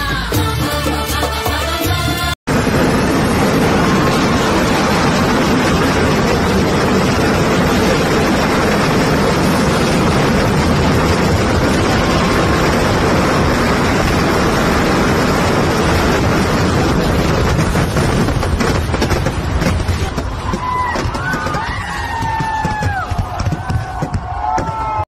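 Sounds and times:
fireworks crackling: 0:02.5 - 0:25.0
fireworks roaring: 0:02.5 - 0:25.0.

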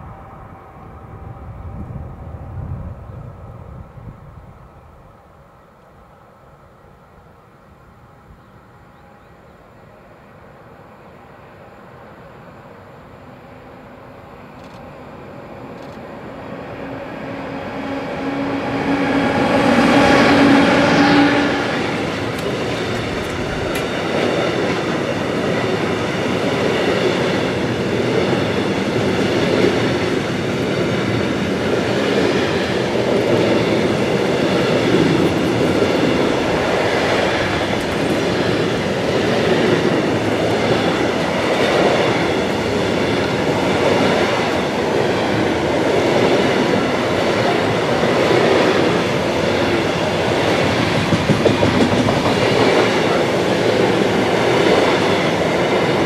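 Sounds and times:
electric locomotive passing: 0:00.0 - 0:56.0
freight train rumbling on rails: 0:00.0 - 0:56.0
steady locomotive tones: 0:00.0 - 0:56.0.

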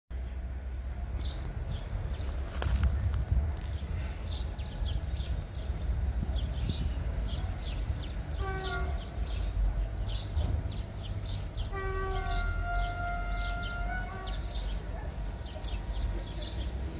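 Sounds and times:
steady low rumble: 0:00.2 - 0:08.2
locomotive horn blasts: 0:08.4 - 0:09.2, 0:11.7 - 0:14.4.

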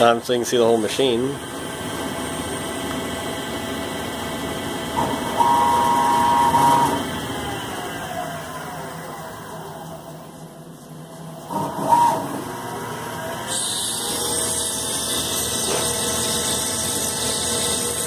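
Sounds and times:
mini lathe running: 0:04.3 - 0:08.3.

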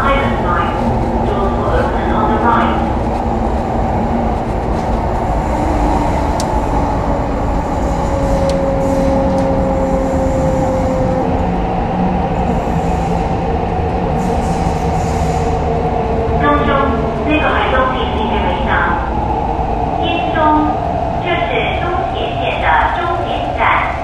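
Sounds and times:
train wheels rumbling on rail: 0:00.0 - 0:24.0.

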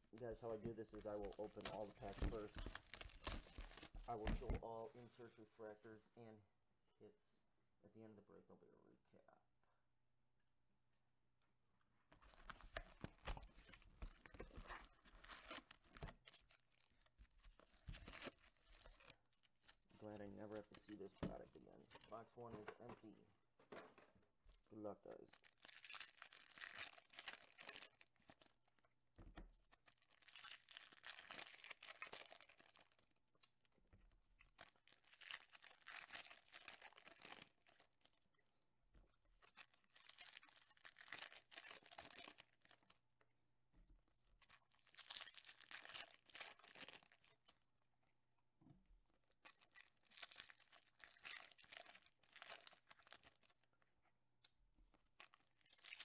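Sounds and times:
foil packs tearing and crinkling: 0:00.5 - 0:04.6, 0:30.0 - 0:33.0, 0:34.6 - 0:37.9, 0:39.5 - 0:42.8.

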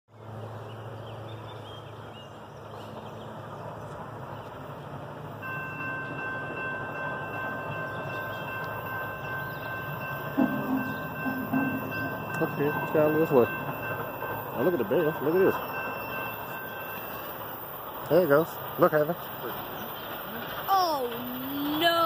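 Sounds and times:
steam locomotive rumbling hiss: 0:09.8 - 0:22.0.

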